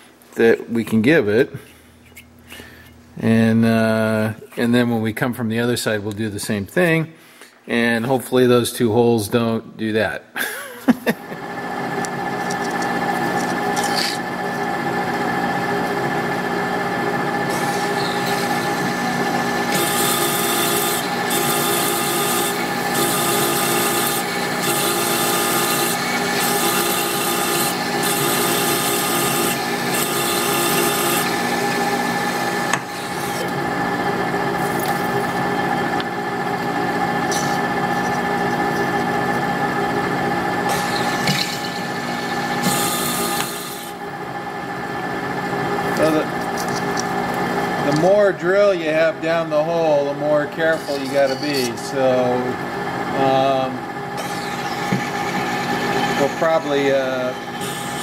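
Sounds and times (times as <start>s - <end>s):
lathe gear whine: 11.4s - 58.0s
drill scraping metal: 17.4s - 33.6s, 36.5s - 39.6s, 40.6s - 44.0s, 49.3s - 52.4s, 54.1s - 58.0s.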